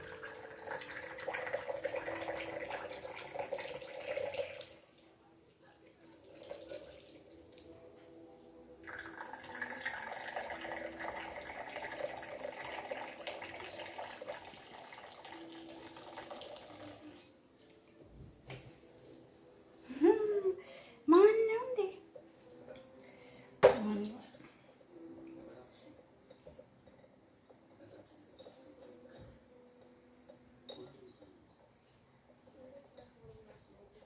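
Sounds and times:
coffee pouring into cups: 0.0 - 7.7, 8.4 - 17.3.

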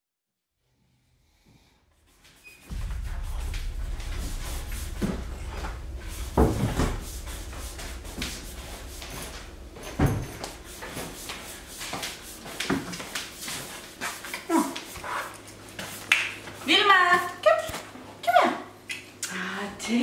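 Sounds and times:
low steady hum: 2.7 - 14.9.

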